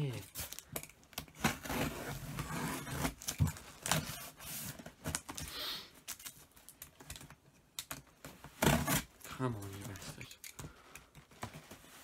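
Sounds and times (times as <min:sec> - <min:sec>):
tape and cardboard clicks and rustles: 0:00.0 - 0:12.0
tape scraping rip: 0:01.4 - 0:05.2.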